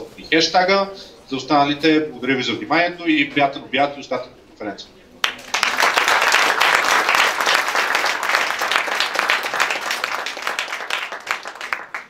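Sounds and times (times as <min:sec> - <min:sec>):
audience applauding: 0:05.2 - 0:12.0.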